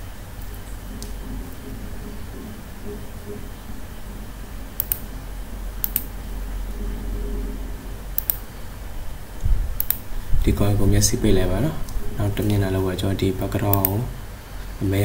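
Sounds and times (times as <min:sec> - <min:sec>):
low electrical hum: 0:00.0 - 0:15.0
computer mouse clicking: 0:04.8 - 0:05.0, 0:05.8 - 0:06.1, 0:08.2 - 0:08.5, 0:09.8 - 0:10.0, 0:13.7 - 0:14.0.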